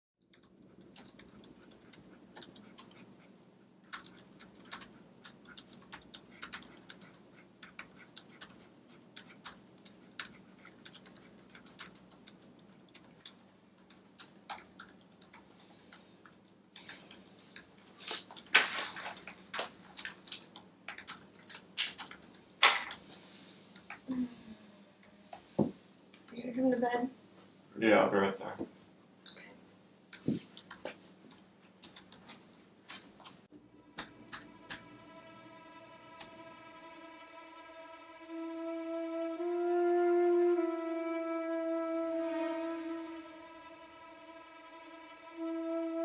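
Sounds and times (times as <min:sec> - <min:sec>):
low room hum: 0:00.2 - 0:46.0
keyboard typing clicks: 0:00.3 - 0:03.0, 0:03.9 - 0:17.7, 0:18.3 - 0:22.3, 0:30.1 - 0:32.2.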